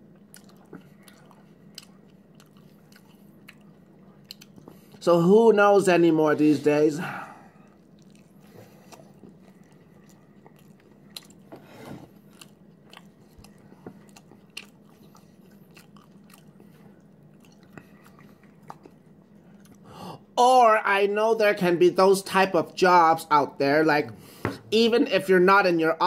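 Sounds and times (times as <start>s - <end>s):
faint chewing: 0.0s - 5.0s, 7.6s - 19.9s.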